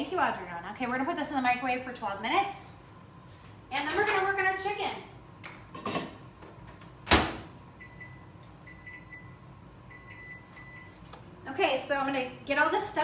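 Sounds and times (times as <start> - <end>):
microwave door shutting: 7.0 - 7.5.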